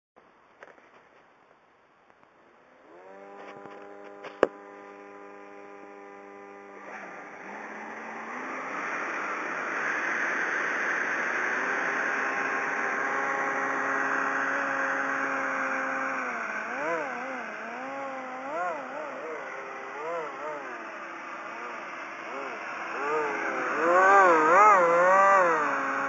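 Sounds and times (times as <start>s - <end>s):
electric motor whining: 2.5s - 26.0s
rush of air from fan: 5.0s - 15.4s.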